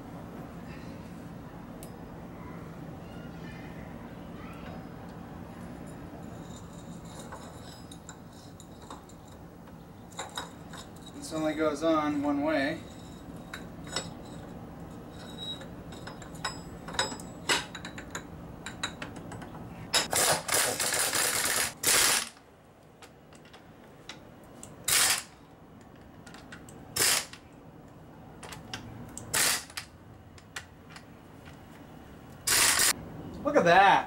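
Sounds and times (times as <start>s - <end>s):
pneumatic impact wrench hammering: 20.0s - 22.4s, 24.9s - 25.4s, 27.0s - 27.4s, 29.3s - 29.9s, 32.5s - 33.0s.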